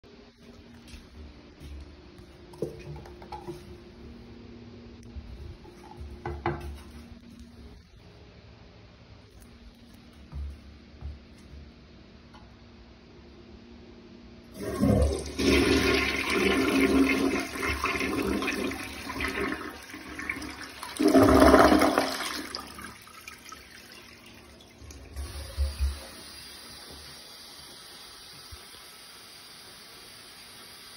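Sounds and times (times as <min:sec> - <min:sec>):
toilet flushing: 0:14.5 - 0:30.9.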